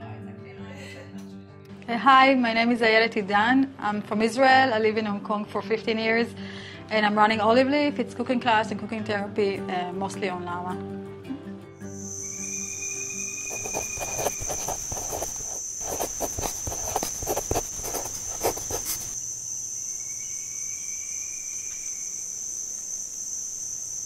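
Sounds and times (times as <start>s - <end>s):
insects chirring: 11.8s - 24.0s
faint thin whistle: 12.0s - 15.4s.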